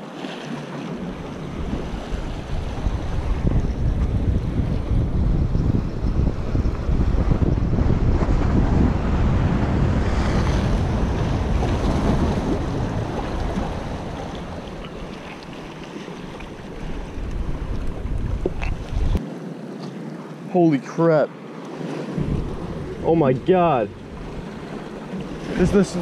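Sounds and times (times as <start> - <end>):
wind buffeting microphone: 0.9 - 19.2, 22.1 - 26.0
waves washing against rocks: 6.2 - 19.3, 21.7 - 26.0.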